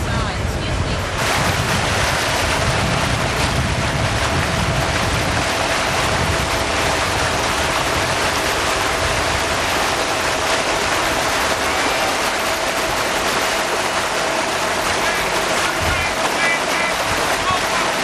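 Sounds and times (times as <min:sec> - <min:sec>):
motorboat wind and water rush: 0:00.0 - 0:18.0.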